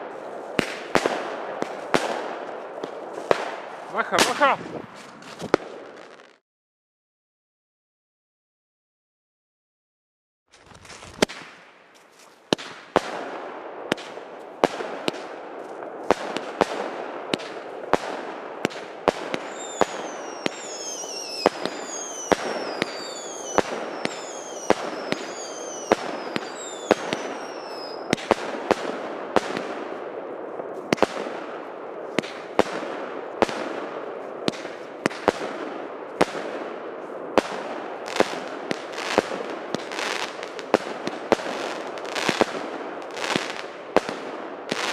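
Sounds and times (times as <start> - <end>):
crackle of firework bursts: 0.0 - 6.4, 10.5 - 29.9, 30.8 - 44.9
firework shots: 0.0 - 6.4, 10.7 - 11.9, 12.5 - 30.2, 30.8 - 44.9
falling whistles: 19.5 - 28.1.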